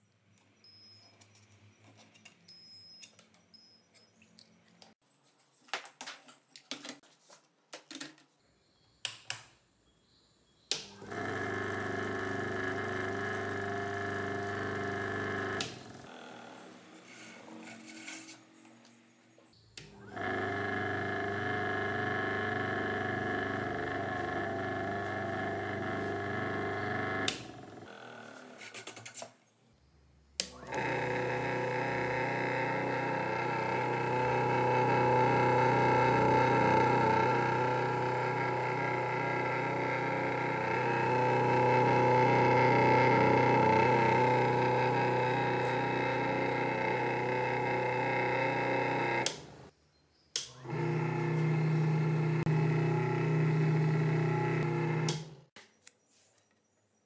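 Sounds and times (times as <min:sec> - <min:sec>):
electric motor humming and whining: 0:10.8 - 0:17.8, 0:19.8 - 0:28.6, 0:30.4 - 0:49.7, 0:50.4 - 0:55.6
clicks: 0:50.3 - 0:50.8, 0:54.5 - 0:56.0.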